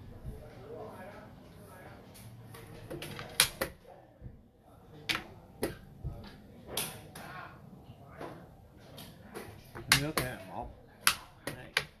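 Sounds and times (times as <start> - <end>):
game pieces clacking on wooden board: 2.9 - 3.7, 11.0 - 12.0.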